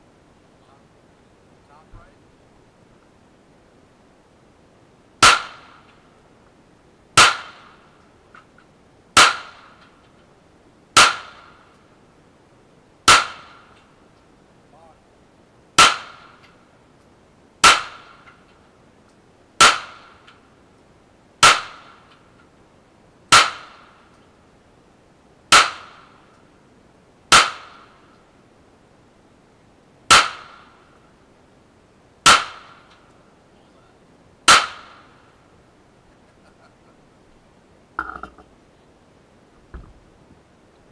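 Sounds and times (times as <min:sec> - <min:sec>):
pistol shots: 0:34.5 - 0:35.1.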